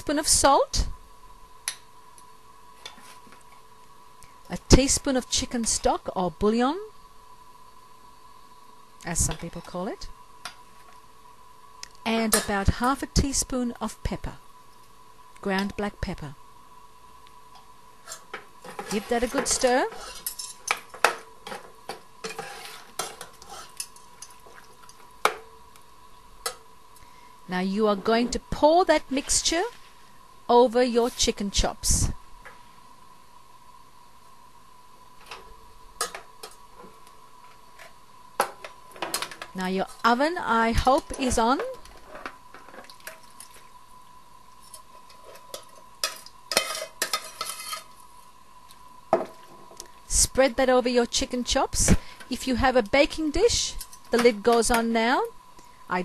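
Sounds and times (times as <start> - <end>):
metal spoon stirring in saucepan: 18.1 - 25.4, 44.6 - 48.0
metal spoon scraping steel pot: 22.2 - 23.9, 46.5 - 48.0.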